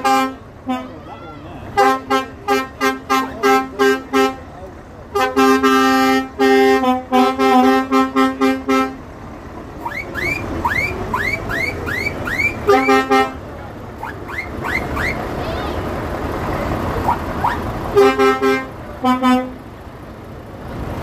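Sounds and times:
rising whooping tones: 17.0 - 17.7
lorry air horn toots: 17.9 - 19.6.

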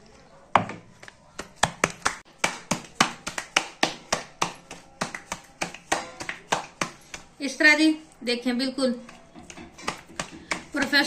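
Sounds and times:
dough slapped between palms: 1.4 - 7.4, 9.5 - 11.0.

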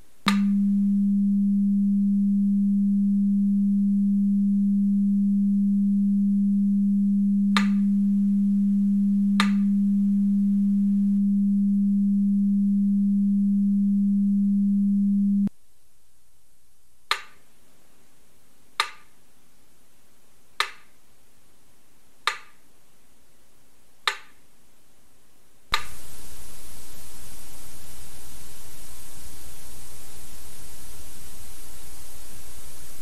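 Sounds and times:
loud static hiss: 0.0 - 22.2, 24.6 - 33.0
low electronic tone: 0.3 - 15.5.

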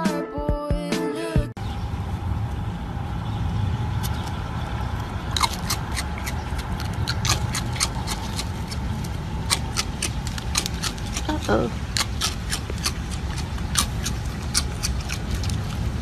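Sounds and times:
low rumble: 1.6 - 16.0
raccoon paws clicking on cereal: 5.0 - 16.0.

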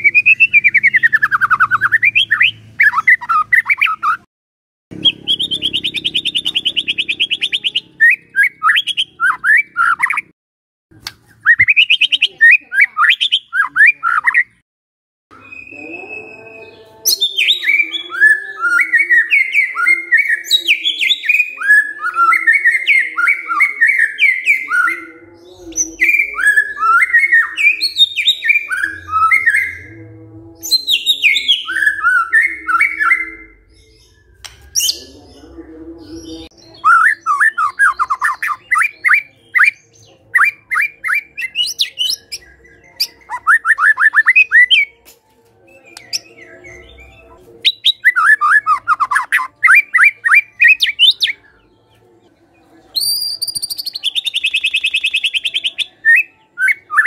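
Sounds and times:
bird singing whistled phrases: 5.0 - 10.3, 11.4 - 14.6, 15.3 - 25.0, 36.5 - 45.0, 45.7 - 51.5, 53.0 - 57.0.

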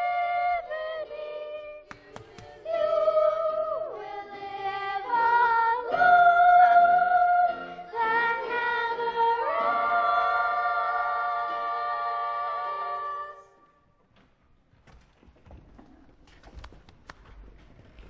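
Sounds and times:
children's choir singing: 0.0 - 13.7.

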